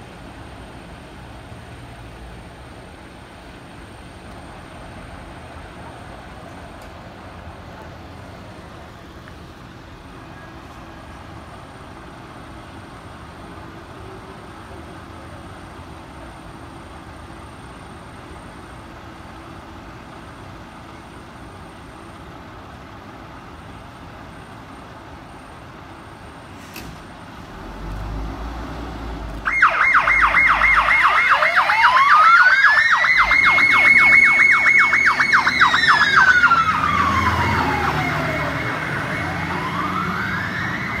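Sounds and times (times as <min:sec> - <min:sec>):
fire engine rumble: 0:00.0 - 0:41.0
fire engine siren wailing: 0:29.2 - 0:41.0.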